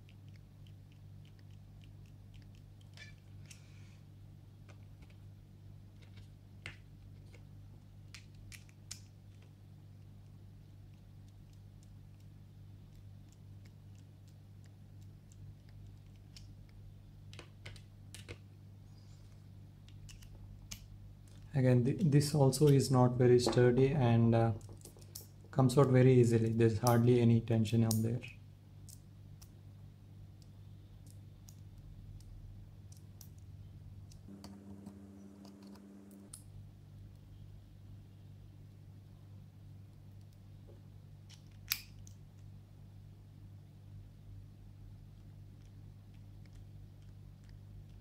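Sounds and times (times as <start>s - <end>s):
steady low hum: 0.0s - 41.3s
low hum: 34.2s - 36.4s.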